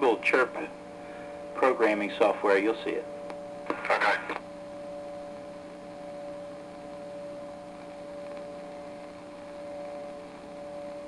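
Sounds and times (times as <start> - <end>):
mains hum: 0.0 - 11.0
radio static hiss: 0.0 - 11.0.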